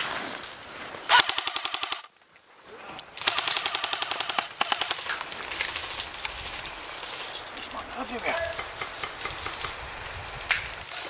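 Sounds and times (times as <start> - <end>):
airsoft rifle full-auto bursts: 1.1 - 2.1, 3.2 - 5.1.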